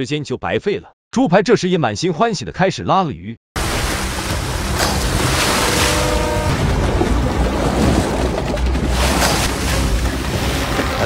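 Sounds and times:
alligator thrashing and splashing: 0:03.6 - 0:11.0.

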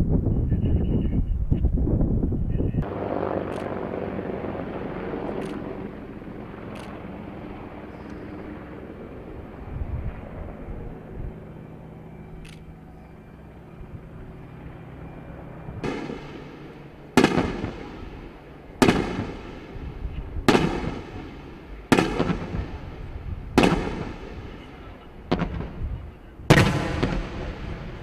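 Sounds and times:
helicopter engines and rotor hum: 0:00.0 - 0:28.0
explosive bangs with echo: 0:15.8 - 0:24.7, 0:25.3 - 0:25.8, 0:26.5 - 0:28.0.

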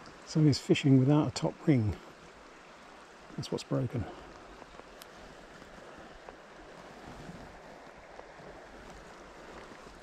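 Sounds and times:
river water rushing: 0:00.0 - 0:10.0
faint clicks: 0:04.3 - 0:05.2.

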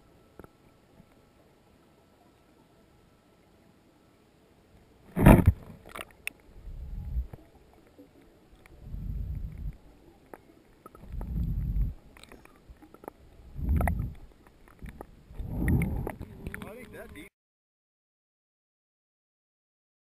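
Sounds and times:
underwater whooshing swells: 0:13.4 - 0:16.6.

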